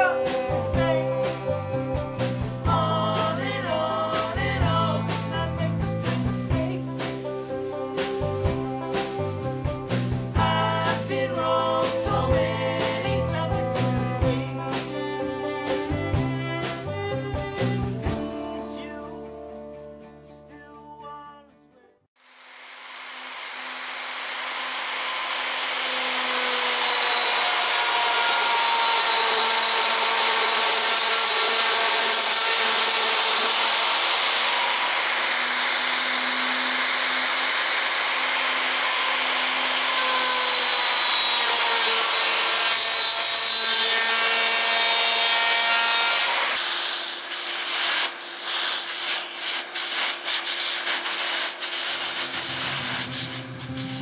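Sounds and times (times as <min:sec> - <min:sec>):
router whining: 0:00.0 - 0:06.3, 0:22.2 - 0:54.0.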